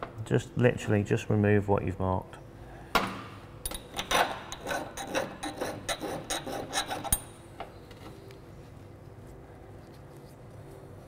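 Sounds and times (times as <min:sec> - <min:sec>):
file rasping on metal: 0:04.0 - 0:07.2.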